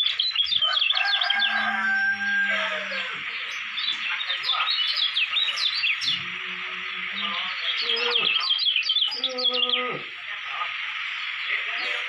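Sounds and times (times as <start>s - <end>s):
bird singing high chirps: 0.0s - 10.1s
deep drawn-out animal calls: 6.0s - 10.2s.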